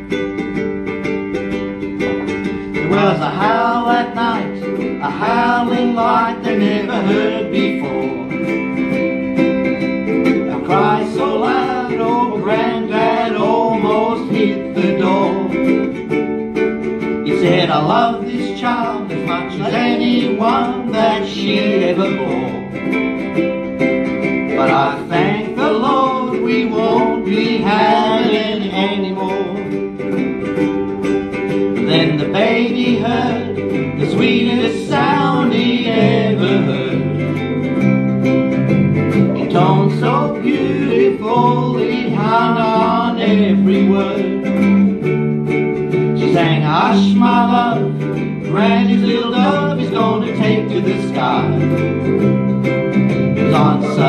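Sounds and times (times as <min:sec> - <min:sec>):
ukuleles playing: 0:00.0 - 0:54.0
people singing: 0:02.6 - 0:08.6, 0:10.2 - 0:16.0, 0:17.2 - 0:22.8, 0:24.5 - 0:29.9, 0:31.8 - 0:37.6, 0:39.1 - 0:44.9, 0:46.2 - 0:52.2, 0:53.0 - 0:54.0.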